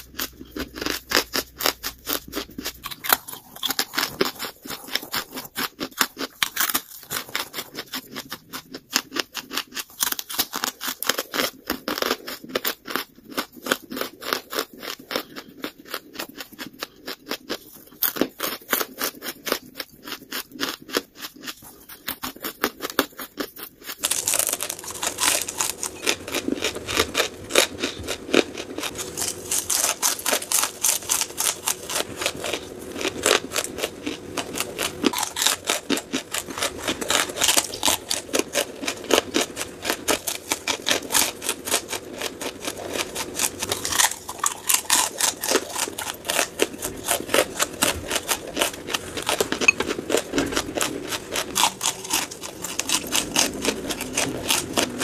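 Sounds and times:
chewing crunchy charcoal: 0:00.0 - 0:55.0.

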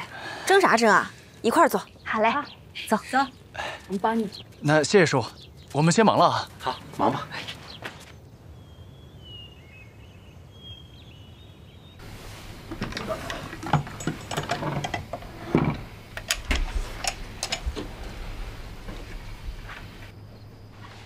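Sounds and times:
faint bird chirps: 0:04.2 - 0:12.0
wooden case clicking and knocking: 0:12.6 - 0:18.1.

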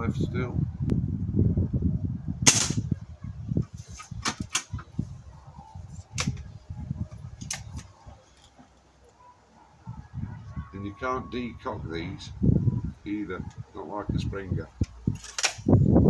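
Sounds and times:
air rifle shot crack: 0:02.4 - 0:02.9
metallic clicks of rifle cocking: 0:14.8 - 0:15.7.

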